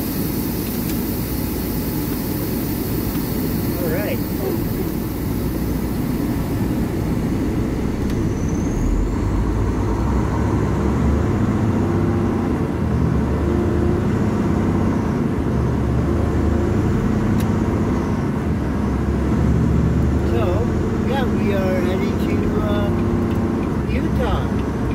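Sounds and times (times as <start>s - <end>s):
diesel truck engine running: 0.0s - 24.9s.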